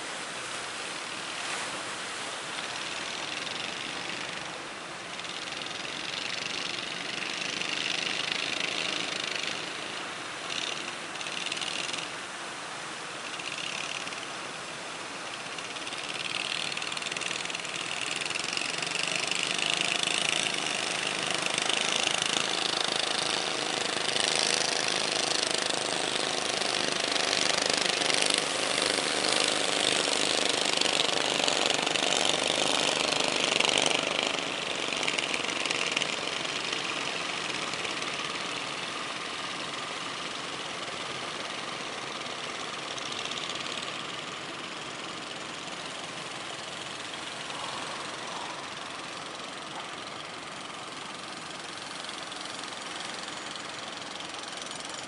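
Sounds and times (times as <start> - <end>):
waves breaking: 0.0 - 42.8
boat engines running: 0.0 - 55.0.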